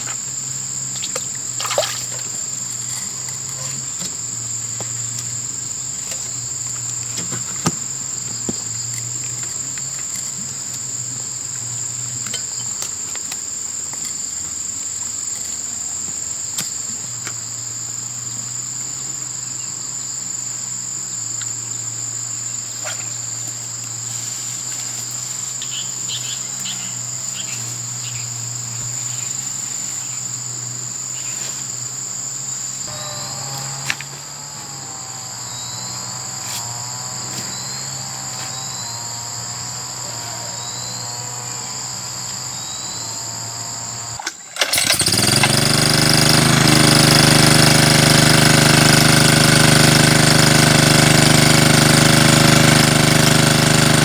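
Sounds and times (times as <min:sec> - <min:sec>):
shrill insect chorus: 0:00.0 - 0:54.0.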